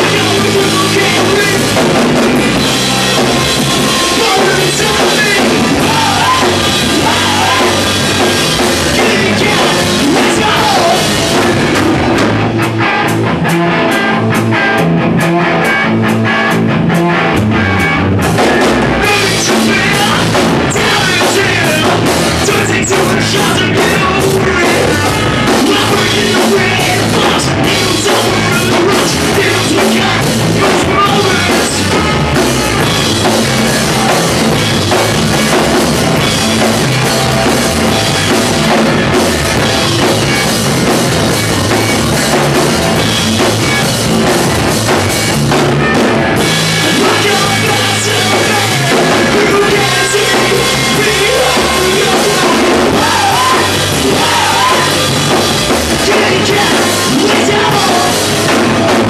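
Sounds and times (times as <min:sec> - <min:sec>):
person singing: 0:00.0 - 0:11.8, 0:18.3 - 0:40.4, 0:46.4 - 0:59.0
bass guitar: 0:00.0 - 0:59.0
drum kit: 0:00.0 - 0:59.0
electric guitar: 0:00.0 - 0:59.0.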